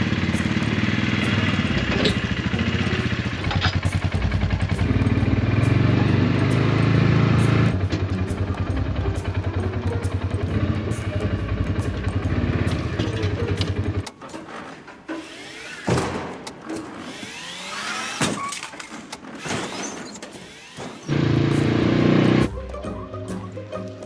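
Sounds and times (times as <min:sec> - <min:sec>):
vehicle engine running: 0:00.0 - 0:14.1, 0:21.1 - 0:22.6.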